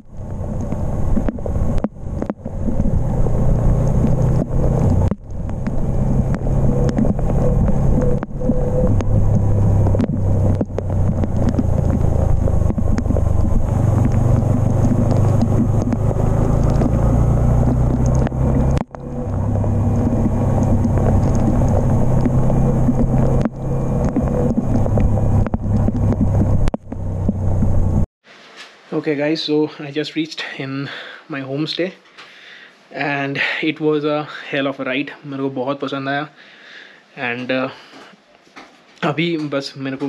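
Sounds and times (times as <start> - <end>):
motorcycle engine running: 0.0 - 28.1
wind on microphone: 0.0 - 28.1.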